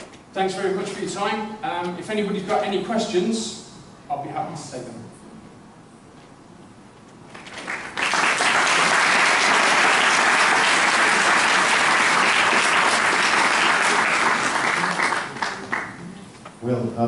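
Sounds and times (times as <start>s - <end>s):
audience applauding: 7.4s - 16.2s.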